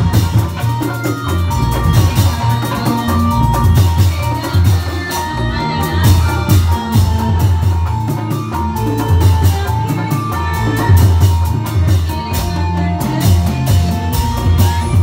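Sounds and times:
drums playing steady beat: 0.0 - 15.0
electric guitar: 0.0 - 15.0
electronic keyboard: 0.0 - 15.0.

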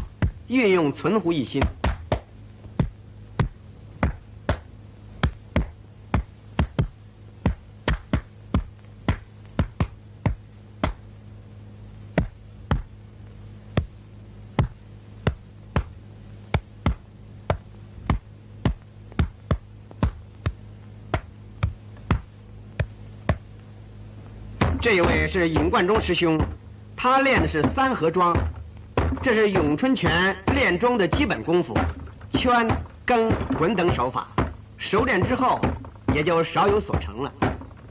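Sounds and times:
hands and forearms striking: 0.0 - 0.4, 1.5 - 11.1, 12.1 - 13.0, 13.7 - 23.6, 24.6 - 26.6, 27.2 - 37.9
low hum: 0.0 - 37.9.

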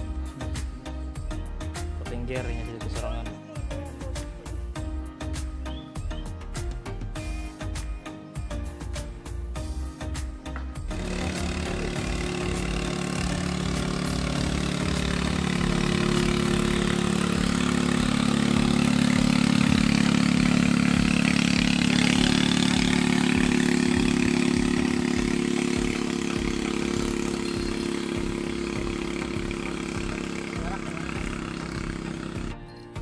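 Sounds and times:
boat engine drone: 10.9 - 32.8.

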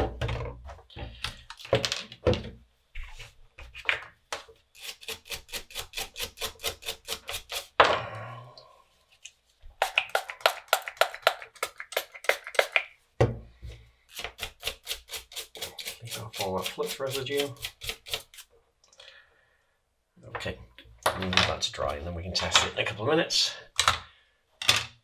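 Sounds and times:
toothbrush scrubbing circuit board: 4.8 - 7.8, 14.2 - 18.5.

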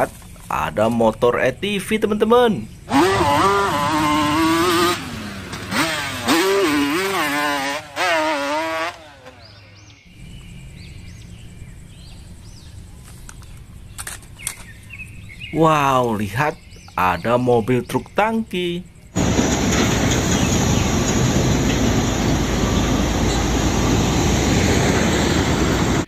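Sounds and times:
quad bike engine revving: 2.8 - 10.0, 19.2 - 26.0.

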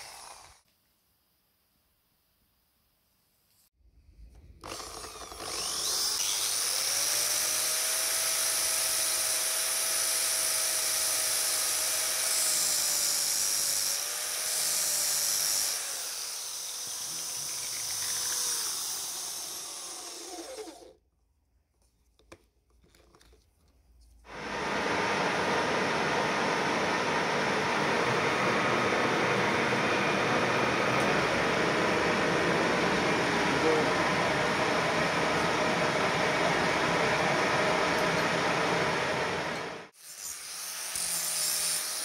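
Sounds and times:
angle grinder grinding metal: 0.0 - 0.6, 4.6 - 21.0, 28.0 - 42.0
electric drill running: 0.0 - 0.6, 4.6 - 21.0, 24.3 - 42.0.

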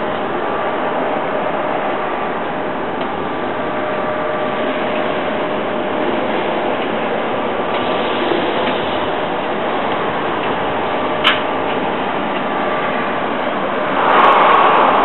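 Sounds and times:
mechanical drone: 13.8 - 15.0.

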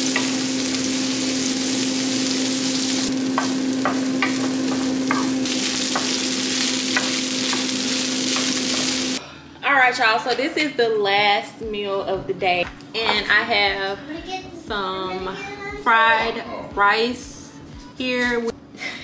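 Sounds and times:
vegetables sizzling in a frying pan: 0.0 - 9.2
spatula tapping against pan: 3.4 - 5.4.

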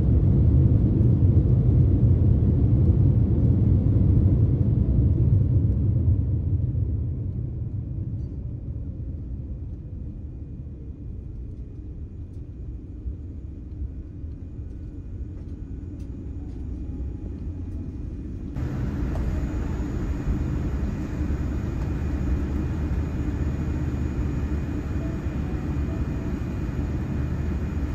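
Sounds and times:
low rumble of engines and wheels: 0.0 - 27.9
faint steady whine: 8.0 - 27.9.

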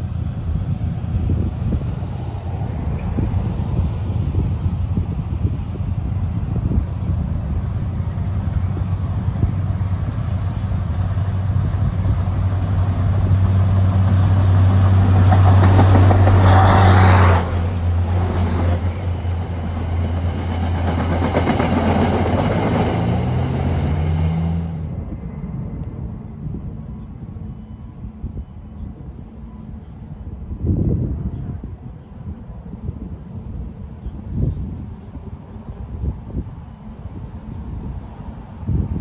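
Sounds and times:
diesel locomotive engine drone: 0.0 - 39.0
train wheels on rails: 7.3 - 24.9.

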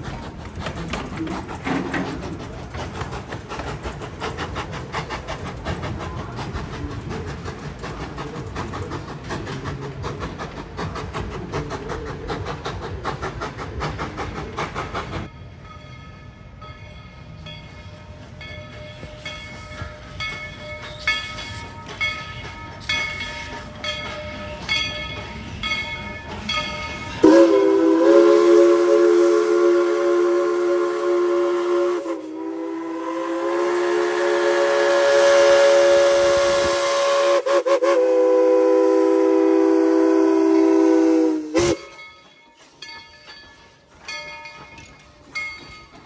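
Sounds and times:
steam train rattling on track: 0.0 - 46.0
locomotive bell ringing: 15.3 - 27.8, 41.6 - 46.0
chime steam whistle blowing: 18.7 - 42.9.

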